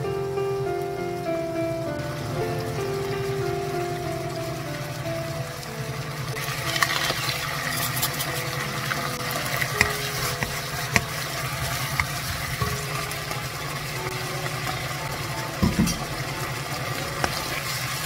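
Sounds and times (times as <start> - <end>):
meat sizzling in a wok: 0.0 - 18.0
wooden spoon scraping a wok: 6.6 - 8.6
utensils clicking against pan: 6.6 - 12.9.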